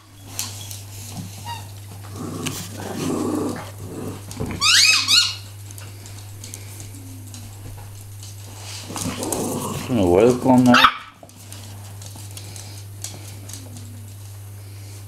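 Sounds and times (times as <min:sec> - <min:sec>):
small dogs playing: 0:00.0 - 0:15.0
dogs squealing high-pitched: 0:04.6 - 0:05.5.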